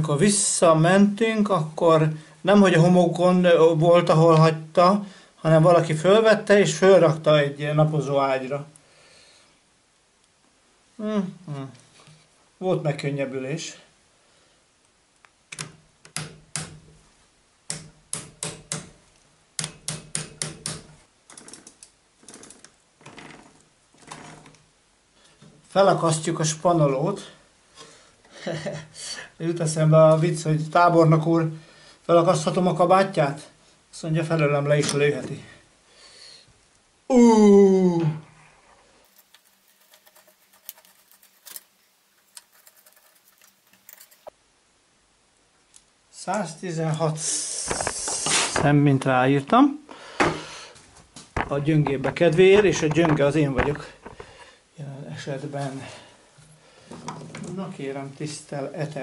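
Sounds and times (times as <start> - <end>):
chain rattling: 39.1 - 44.3
metal chain clicking: 39.1 - 44.3.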